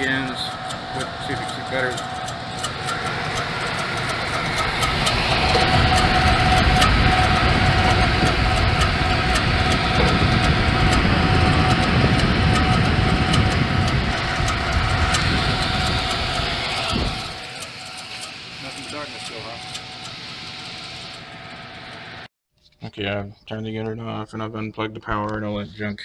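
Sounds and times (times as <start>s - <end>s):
irregular ticking: 0.0s - 20.8s
blower fan whirring and whining: 0.0s - 22.3s.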